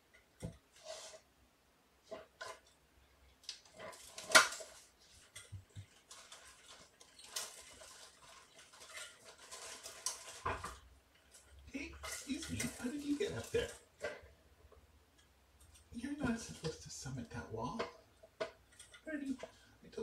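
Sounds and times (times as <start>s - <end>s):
small toys clattering: 2.1s - 14.3s, 17.6s - 19.7s
paper rustling: 3.5s - 14.1s.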